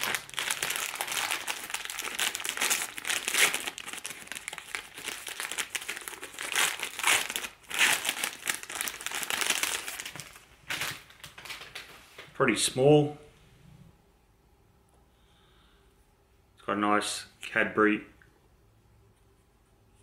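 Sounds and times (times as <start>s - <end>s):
plastic wrapper crinkling: 0.0s - 12.0s.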